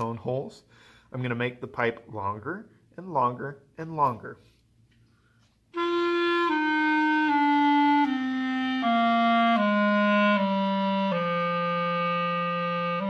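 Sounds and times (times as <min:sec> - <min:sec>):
clarinet descending scale: 0:05.7 - 0:13.0.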